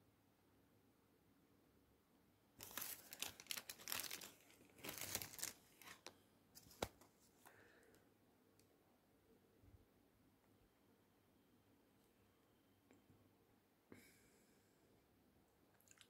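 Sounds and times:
foil wrapper crackling: 2.6 - 6.9.

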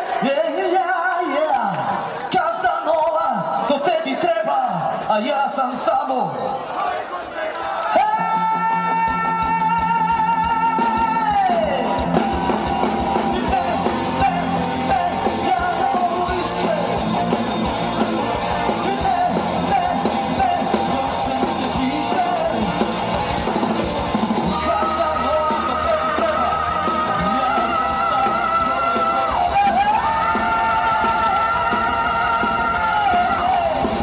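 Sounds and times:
rock band playing: 0.0 - 34.0
person singing: 7.9 - 12.1, 13.3 - 17.2, 18.3 - 23.0, 24.2 - 34.0.

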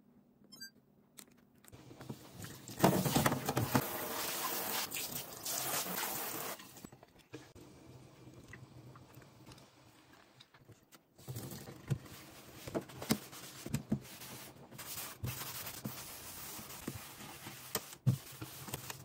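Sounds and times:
water running from tap: 3.7 - 6.6.

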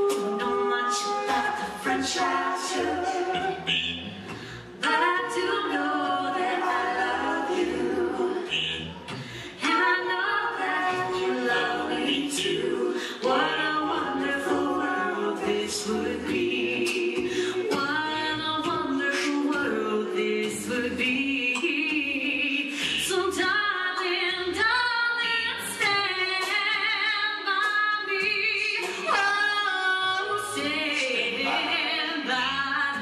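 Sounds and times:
vocal percussion hits: 0.0 - 23.2
a cappella group singing in harmony: 0.0 - 33.0.

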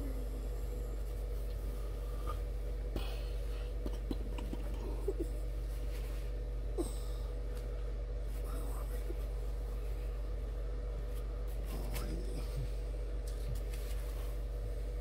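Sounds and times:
steady low hum: 0.0 - 15.0
bedding and paper rustling: 13.3 - 14.5.

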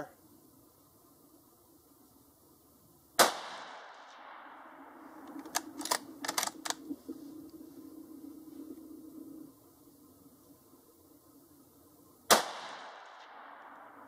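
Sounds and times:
rifle shot with echo: 3.2 - 6.8, 12.3 - 14.0
sharp clicks: 5.2 - 7.6.

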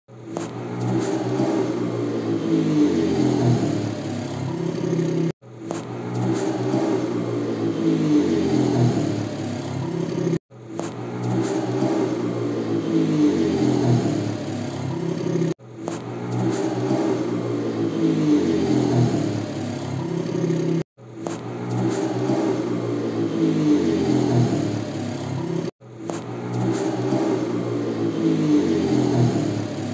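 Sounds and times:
motorcycle engine revving: 0.1 - 29.9.

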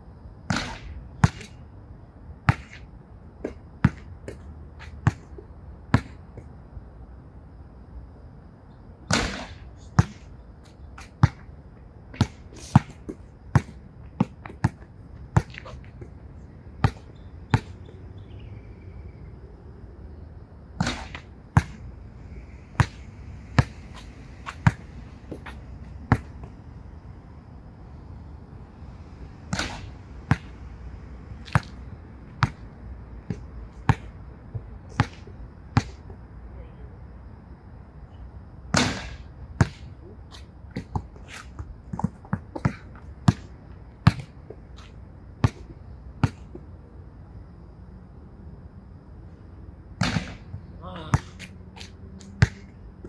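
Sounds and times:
basketball bouncing on hard court: 3.5 - 5.2, 12.2 - 16.1, 16.8 - 18.0, 20.8 - 21.8, 22.8 - 23.0, 24.5 - 26.5, 29.5 - 30.5, 31.4 - 31.8, 35.8 - 36.0, 40.8 - 44.3, 45.4 - 46.6, 52.3 - 52.7
ball banging off backboard: 20.8 - 21.8, 50.0 - 50.4.

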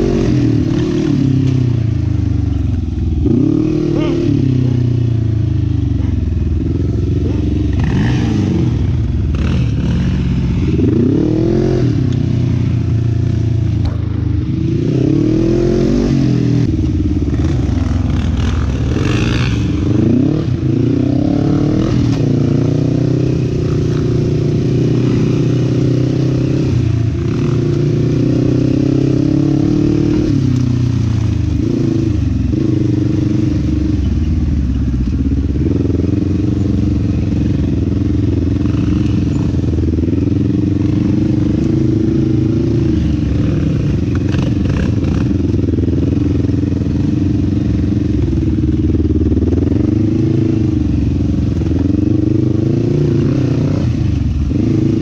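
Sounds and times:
quad engine revving: 0.0 - 1.8, 3.2 - 12.5, 13.7 - 30.7, 37.7 - 47.3, 48.6 - 55.0.

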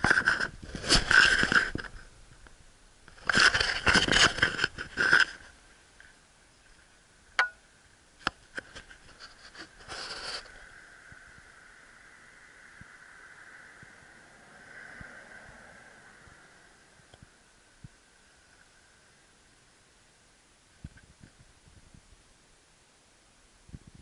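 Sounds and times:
scraping and rubbing on microphone: 0.0 - 2.1, 3.1 - 6.8, 8.4 - 10.8.

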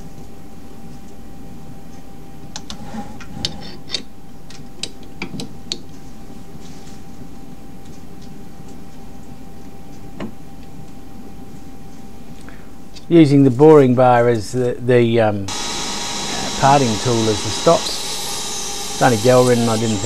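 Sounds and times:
machine hum with faint whine: 0.0 - 20.0.

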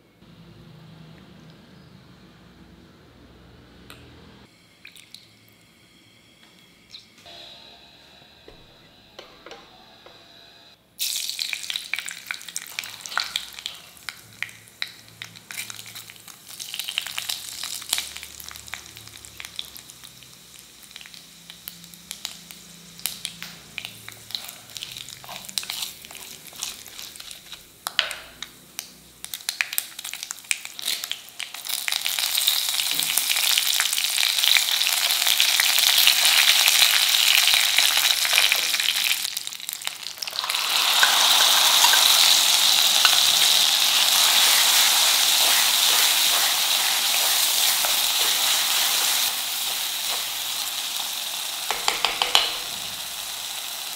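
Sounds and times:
loud sizzle of frying in oil: 11.0 - 53.9
seeds crackling in hot oil: 11.0 - 53.9
wooden spatula stirring: 25.2 - 27.6, 42.8 - 50.8.

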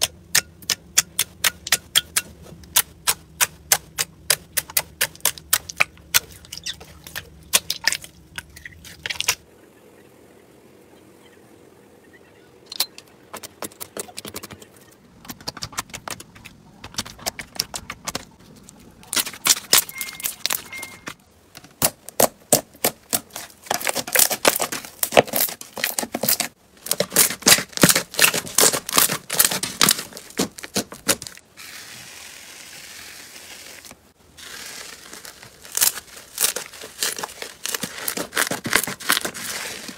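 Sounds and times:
slime crackling and popping: 33.4 - 39.8.

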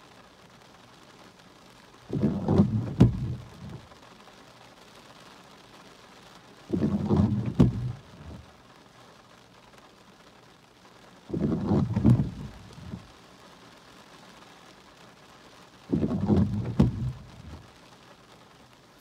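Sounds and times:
faint steady hiss: 0.0 - 19.0
windshield wipers sweeping wet glass: 0.0 - 19.0
wiper knock: 2.1 - 3.9, 6.7 - 8.5, 11.3 - 13.1, 15.9 - 17.7.

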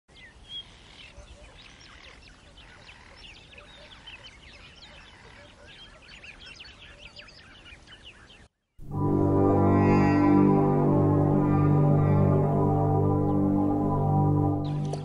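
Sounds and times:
small birds chirping: 0.1 - 8.8.

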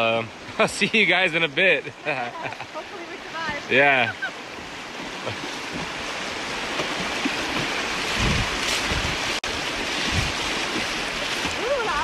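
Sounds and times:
river water rushing past canoe: 0.0 - 12.0
wind buffeting microphone: 4.5 - 12.0.

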